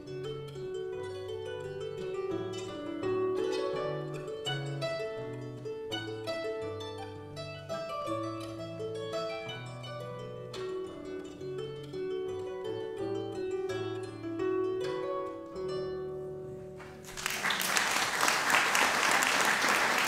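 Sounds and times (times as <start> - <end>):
harp playing: 0.0 - 17.1
audience applause: 17.0 - 20.0.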